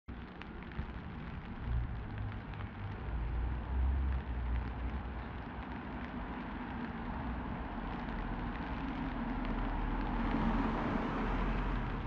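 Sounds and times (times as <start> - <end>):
rain pattering: 0.1 - 12.0
water dripping: 0.1 - 12.0.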